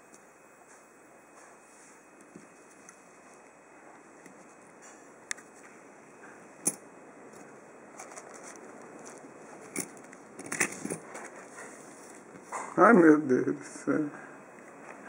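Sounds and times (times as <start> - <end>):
keys clinking on a keyring: 8.0 - 11.1.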